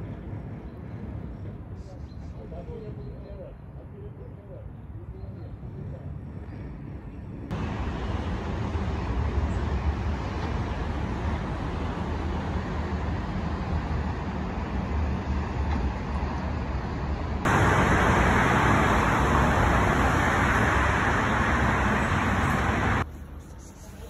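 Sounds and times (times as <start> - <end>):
distant city rumble: 0.0 - 24.0
road traffic rushing: 7.5 - 23.2.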